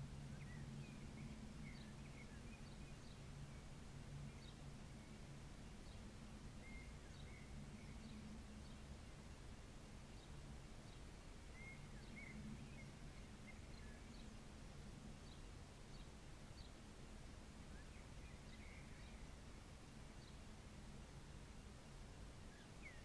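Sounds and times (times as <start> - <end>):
low steady hum: 0.0 - 23.0
bird chirps: 6.6 - 8.8, 10.2 - 14.4.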